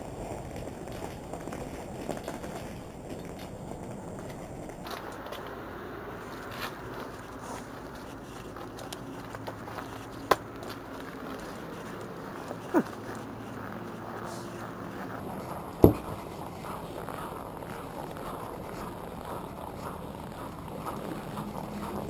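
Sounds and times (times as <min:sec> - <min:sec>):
wheels rolling over snow: 0:00.0 - 0:22.0
sharp knocks: 0:15.8 - 0:16.2.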